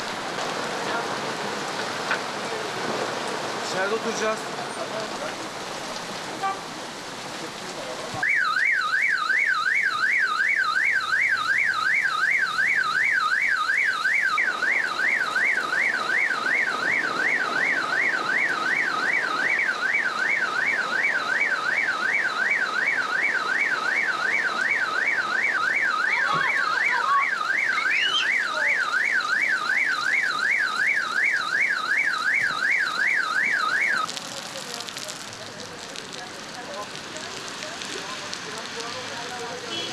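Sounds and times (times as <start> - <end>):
heavy rain hissing: 0.0 - 8.2, 31.7 - 39.9
car alarm siren warbling: 8.2 - 34.1.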